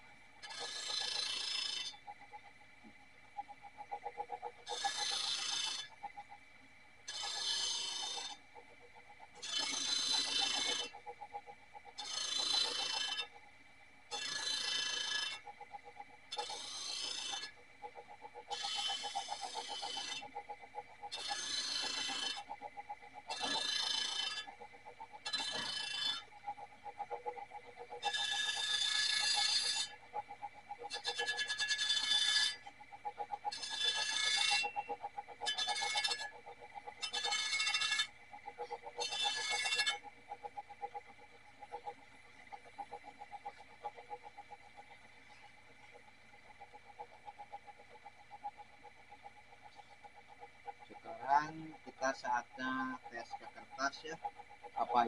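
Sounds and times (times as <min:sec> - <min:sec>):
sharpening machine whine: 0:04.7 - 0:05.9, 0:07.1 - 0:08.4, 0:09.4 - 0:11.0, 0:12.0 - 0:13.3, 0:14.1 - 0:15.4, 0:16.3 - 0:17.5, 0:18.5 - 0:20.3, 0:21.1 - 0:22.4, 0:23.3 - 0:24.5, 0:25.2 - 0:26.2, 0:28.0 - 0:30.0, 0:30.9 - 0:32.7, 0:33.5 - 0:36.4, 0:37.0 - 0:38.1, 0:39.0 - 0:40.0
fast even ticking: 0:45.7 - 0:55.0.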